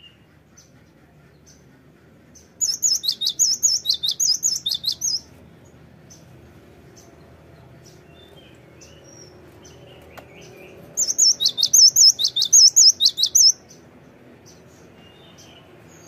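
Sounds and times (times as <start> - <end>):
bird ringing whistled song: 2.6 - 5.2, 11.0 - 13.6.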